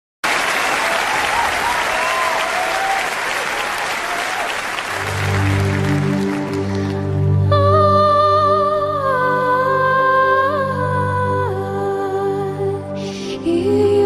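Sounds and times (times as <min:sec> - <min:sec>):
audience applauding: 0:00.2 - 0:07.2
low musical drone: 0:05.0 - 0:14.0.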